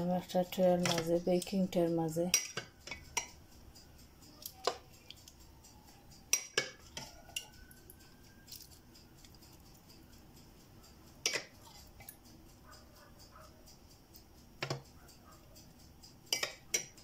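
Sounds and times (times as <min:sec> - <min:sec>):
plastic spoon clicking on dish: 0:00.8 - 0:01.6, 0:02.3 - 0:03.4, 0:04.4 - 0:05.4, 0:06.3 - 0:09.7, 0:11.2 - 0:12.2, 0:14.6 - 0:14.8, 0:16.3 - 0:17.0.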